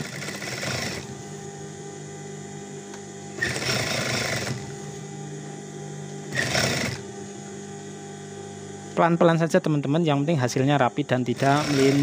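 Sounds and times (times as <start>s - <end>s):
sewing machine stitching: 0.0s - 1.1s, 3.4s - 4.7s, 6.3s - 7.0s, 11.4s - 12.0s
steady low hum: 0.0s - 12.0s.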